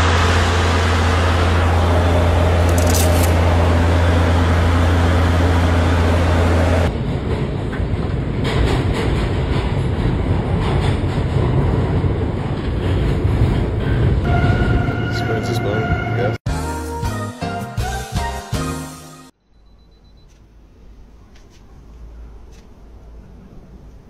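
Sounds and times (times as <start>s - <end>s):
aircraft cockpit drone: 0.0s - 6.9s
train car rumble and rattle: 0.0s - 16.4s.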